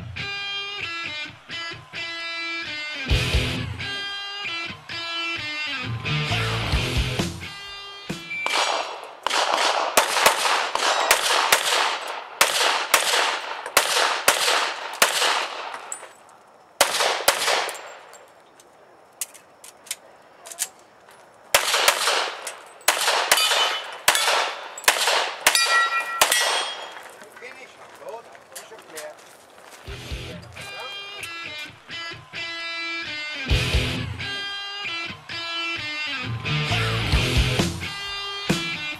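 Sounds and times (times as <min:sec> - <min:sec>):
bullets ringing on steel targets: 0:08.3 - 0:18.4, 0:21.6 - 0:27.2
handgun shots with echo: 0:08.4 - 0:16.1, 0:16.8 - 0:18.2, 0:21.6 - 0:27.0.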